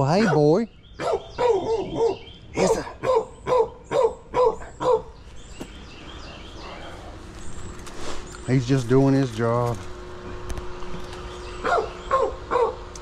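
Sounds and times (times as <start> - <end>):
dog barking: 0.1 - 5.2, 11.6 - 12.8.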